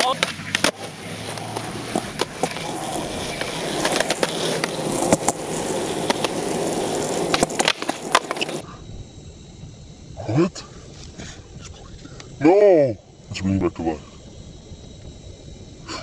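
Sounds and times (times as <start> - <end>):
skateboard clacks: 0.0 - 8.6
skateboard tail pop: 0.0 - 8.6
skateboard wheels rolling on concrete: 0.0 - 16.0.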